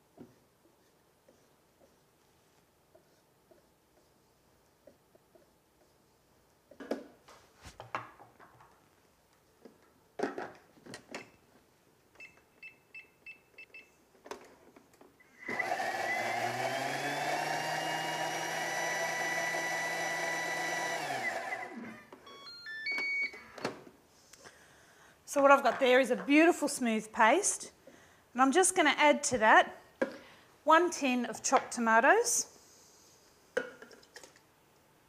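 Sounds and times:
blender motor whining: 15.3s - 22.2s
keypad beeps: 22.2s - 23.4s.

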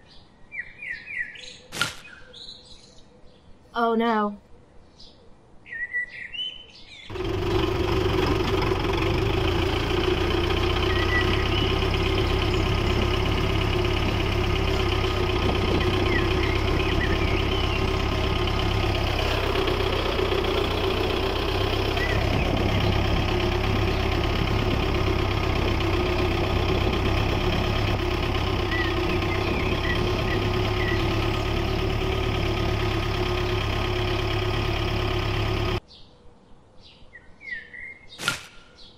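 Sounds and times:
tractor engine idling: 7.1s - 35.8s
faint bird chirps: 10.8s - 13.0s, 16.0s - 18.3s.

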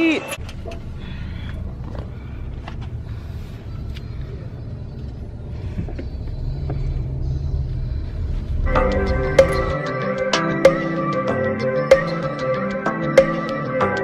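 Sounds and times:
vehicle engine rumble: 0.0s - 13.6s
steady low hum: 0.4s - 11.1s.

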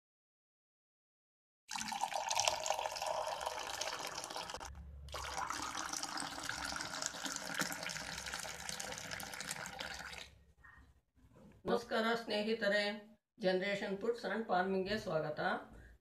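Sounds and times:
milk pouring into ceramic cup: 1.7s - 10.4s.

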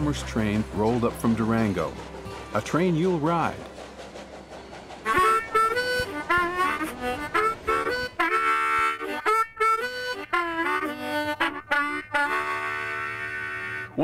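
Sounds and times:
harmonica playing: 5.0s - 14.0s.

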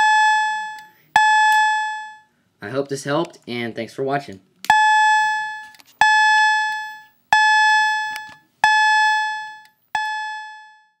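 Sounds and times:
fire alarm chime tones: 0.0s - 2.3s, 4.7s - 11.0s.

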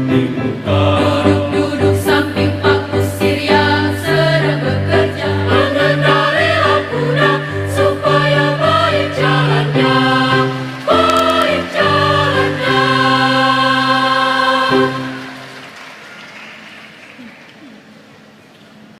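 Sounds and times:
choir singing in harmony: 0.0s - 16.0s
keyboard with pulsing bass line: 10.9s - 13.1s.

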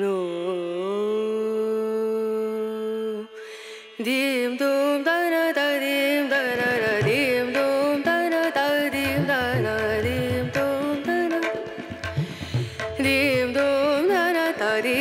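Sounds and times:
drum beats: 9.0s - 14.2s.

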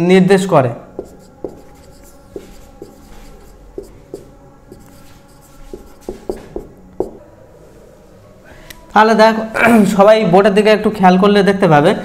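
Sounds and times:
marker pen writing on whiteboard: 0.9s - 7.2s.

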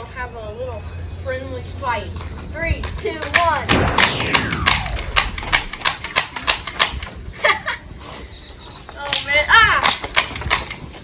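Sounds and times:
gel blasters firing: 3.7s - 6.7s
trigger clicks: 3.7s - 7.0s.

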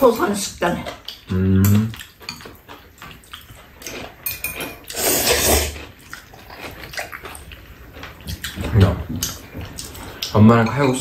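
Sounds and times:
noodles being slurped: 1.8s - 10.4s.

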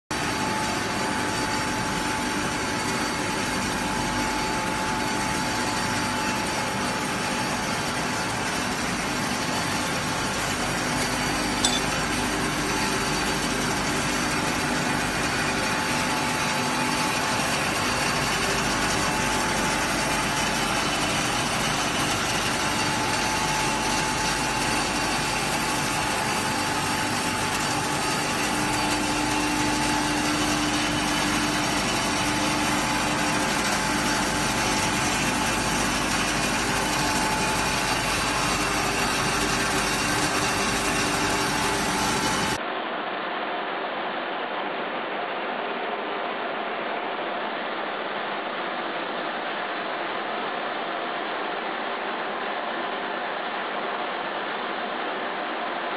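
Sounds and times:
constant hum: 10.4s - 12.6s.

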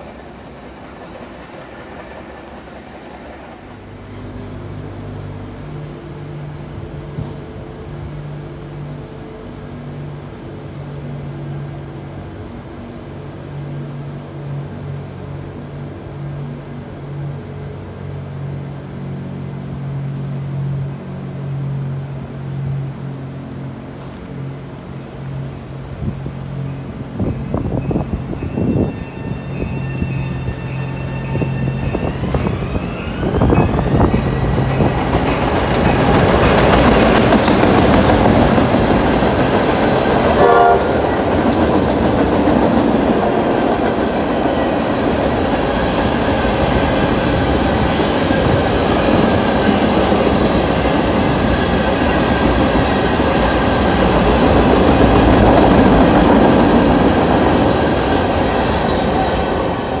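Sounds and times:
train wheel and rail noise: 0.0s - 60.0s
train horn blast: 40.4s - 41.3s.

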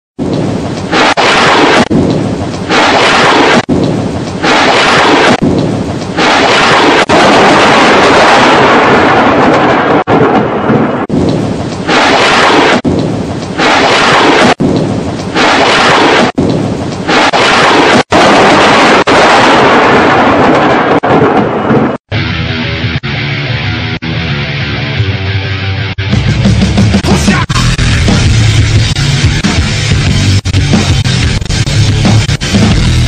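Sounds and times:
rain: 0.2s - 21.2s
thunder rumbling: 0.2s - 22.0s.

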